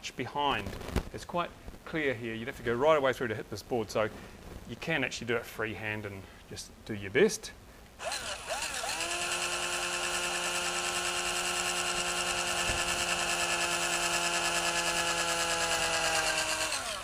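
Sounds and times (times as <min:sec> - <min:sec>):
cordless drill drilling into plastic: 0:08.0 - 0:17.0.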